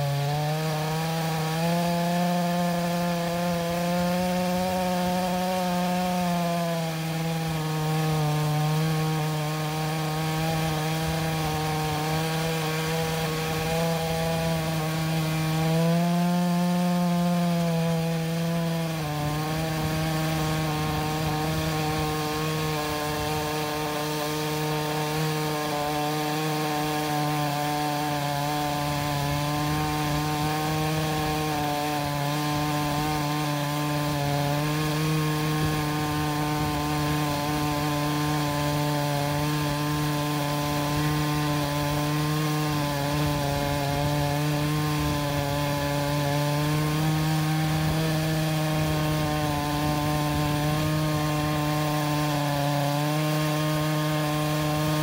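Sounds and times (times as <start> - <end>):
chainsaw cutting log: 0.0 - 55.0.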